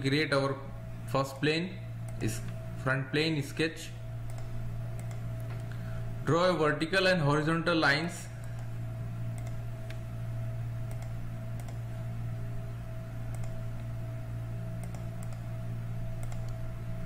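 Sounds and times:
low electrical hum: 0:00.0 - 0:17.0
computer mouse clicks: 0:04.2 - 0:05.8, 0:09.3 - 0:10.0, 0:10.8 - 0:11.8, 0:13.3 - 0:13.9, 0:14.8 - 0:15.5, 0:16.2 - 0:16.7.

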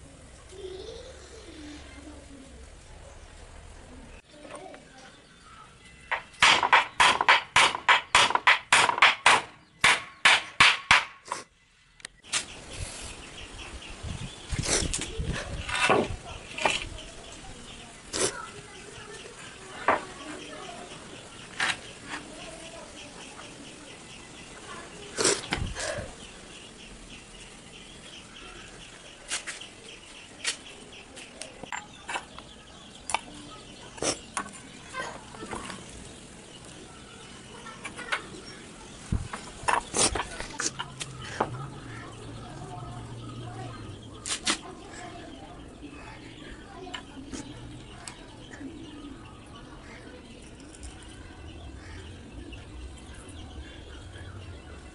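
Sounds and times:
hammer striking nail into wood: 0:06.1 - 0:11.2
shuffling noise: 0:29.2 - 0:31.4.

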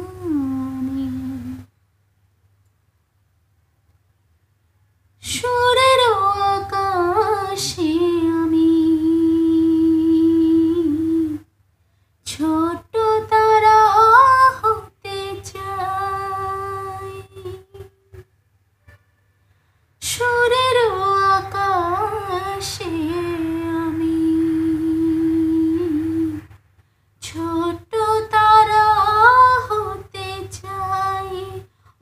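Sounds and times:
woman singing unaccompanied: 0:00.0 - 0:01.7, 0:05.2 - 0:11.5, 0:12.2 - 0:18.3, 0:20.0 - 0:26.6, 0:27.2 - 0:32.0.

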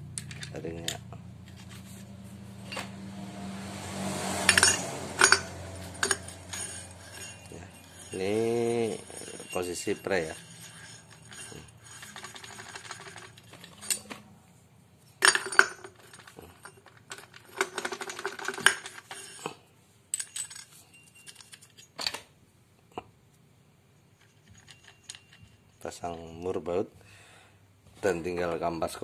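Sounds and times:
metal clutch parts rattling: 0:00.1 - 0:02.0, 0:04.2 - 0:14.2, 0:15.2 - 0:19.6, 0:20.2 - 0:22.0, 0:24.2 - 0:26.0.

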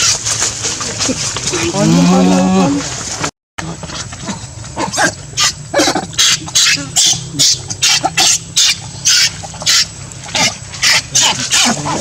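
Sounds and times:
low steady hum: 0:00.0 - 0:12.0
baby monkey shrieking: 0:05.4 - 0:12.0.

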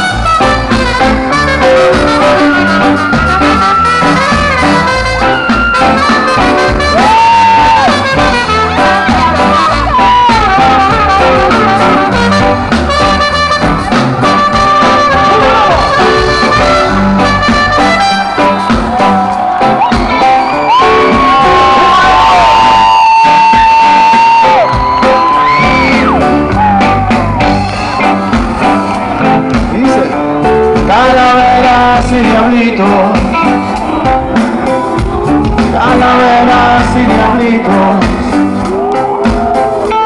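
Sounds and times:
brass section melody: 0:00.0 - 0:40.0
live ska band playing: 0:00.0 - 0:40.0.

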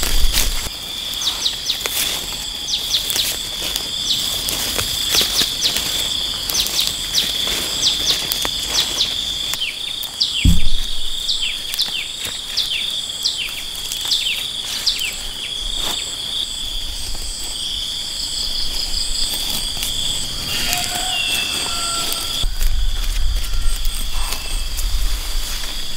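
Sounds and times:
insect chorus: 0:00.0 - 0:25.9
bird chirping: 0:06.6 - 0:15.5
low thump: 0:10.4 - 0:11.8.

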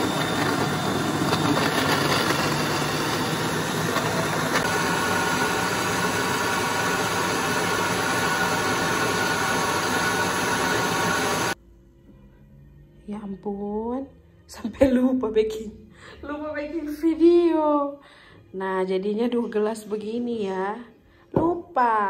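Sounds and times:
blender running: 0:00.0 - 0:11.6.

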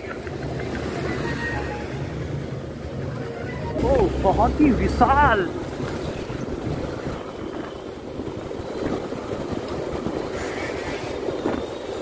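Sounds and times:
wind buffeting microphone: 0:02.4 - 0:12.0.

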